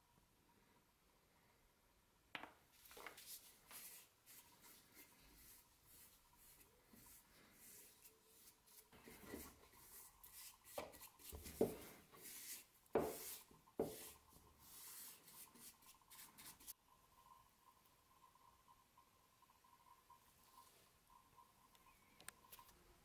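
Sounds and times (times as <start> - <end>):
paintbrush swishing: 2.8 - 16.8.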